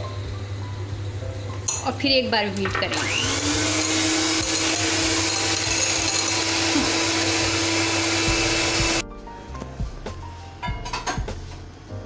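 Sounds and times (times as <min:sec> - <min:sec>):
electric hand mixer whining: 0:02.6 - 0:09.0.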